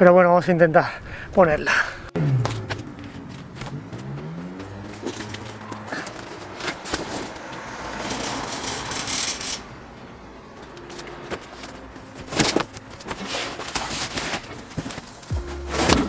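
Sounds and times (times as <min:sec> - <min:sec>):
cardboard scraping and sliding: 0:04.9 - 0:09.5, 0:10.9 - 0:16.0.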